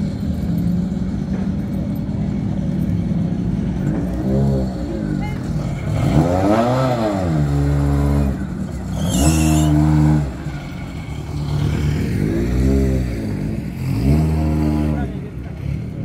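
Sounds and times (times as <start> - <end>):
car engine revving: 3.7 - 16.0.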